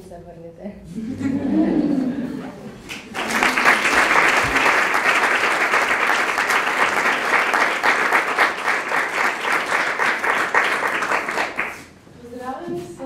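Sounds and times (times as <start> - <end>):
audience applauding: 2.9 - 11.9.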